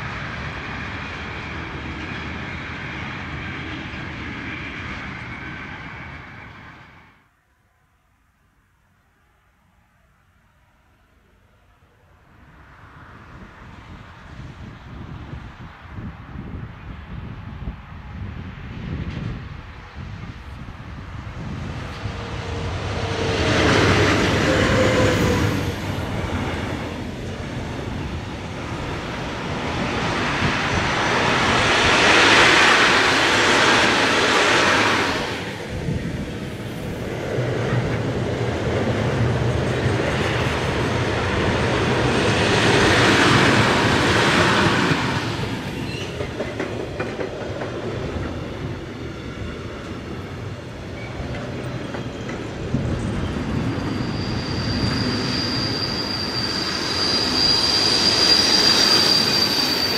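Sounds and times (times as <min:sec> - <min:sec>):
train wheels clattering on rails: 0:36.6 - 0:59.9.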